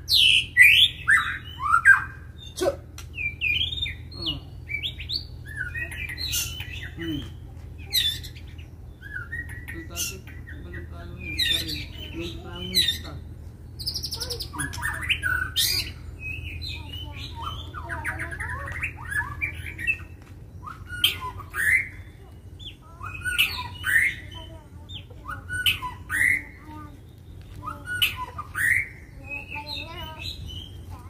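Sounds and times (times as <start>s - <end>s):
bird whistled calls: 7.8s - 10.6s, 13.8s - 24.4s.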